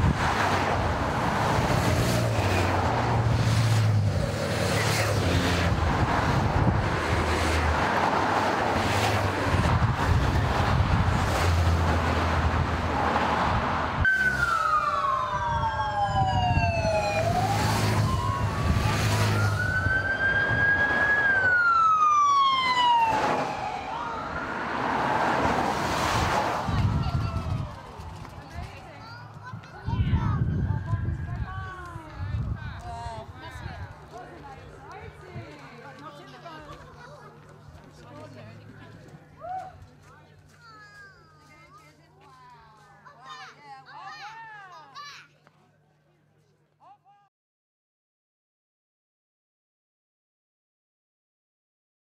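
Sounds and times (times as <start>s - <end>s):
motorcycles and cars driving past: 0.0s - 31.8s
police siren wailing: 14.0s - 25.5s.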